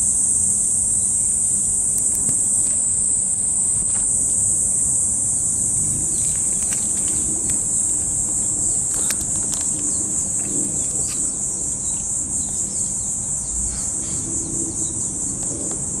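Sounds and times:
shrill insect chorus: 0.0s - 16.0s
faint clicks: 6.2s - 11.3s.

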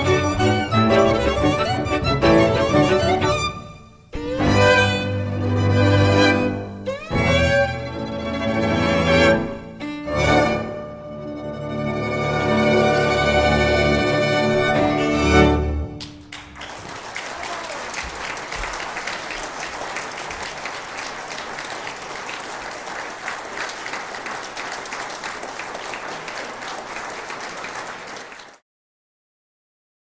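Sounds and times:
audience applause: 16.0s - 28.6s.

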